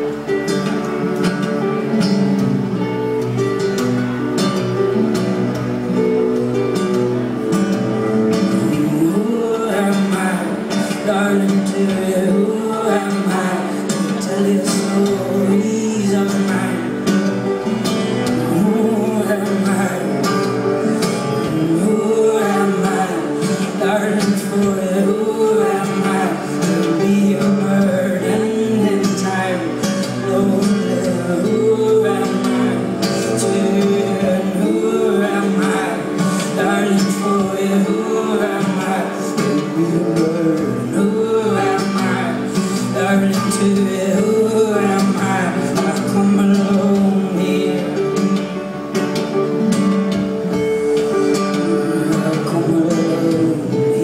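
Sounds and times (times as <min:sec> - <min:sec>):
guitar playing: 0:00.0 - 0:54.0
man singing: 0:06.2 - 0:54.0.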